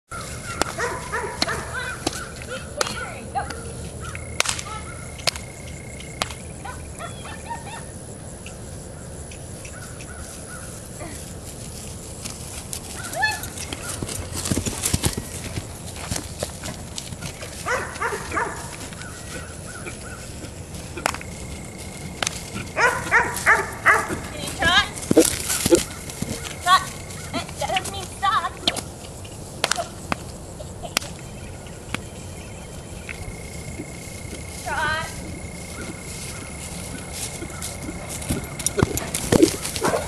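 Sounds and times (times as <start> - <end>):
outdoor background noise: 0.0 - 40.0
sharp cracks: 0.5 - 0.8, 1.4 - 6.5, 21.0 - 21.3, 29.6 - 30.3
dog barking: 0.8 - 1.9, 17.6 - 18.7, 22.8 - 24.2, 39.8 - 40.0.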